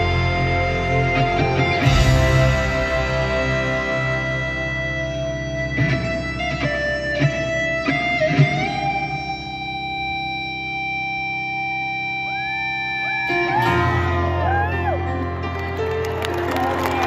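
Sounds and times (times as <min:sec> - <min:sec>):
low accompaniment: 0:00.0 - 0:11.0
electric guitar solo: 0:00.0 - 0:17.0.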